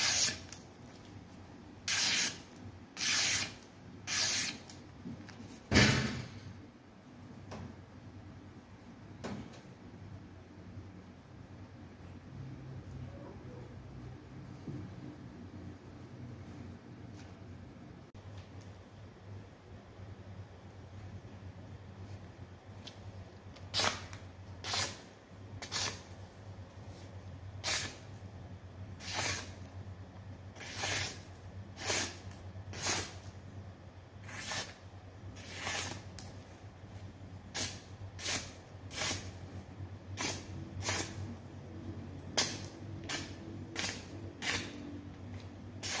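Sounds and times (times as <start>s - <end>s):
cleaver slicing paper: 34.2s - 34.8s, 35.4s - 36.2s.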